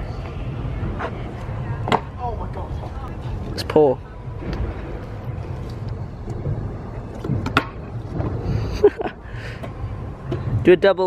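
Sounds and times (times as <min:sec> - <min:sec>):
scooter wheels rolling on concrete: 0:00.0 - 0:11.0.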